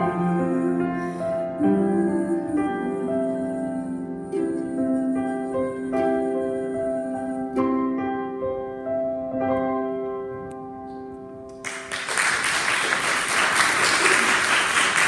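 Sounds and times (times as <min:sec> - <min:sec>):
piano and ukulele chords: 0:00.0 - 0:12.9
audience applause: 0:11.6 - 0:15.0.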